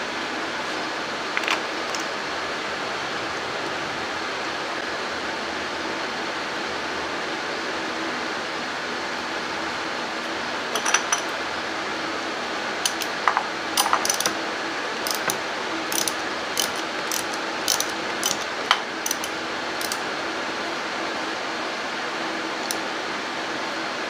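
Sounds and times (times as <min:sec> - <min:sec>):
hand ratchet clicking: 0:12.9 - 0:13.2, 0:13.8 - 0:14.4, 0:15.0 - 0:20.0.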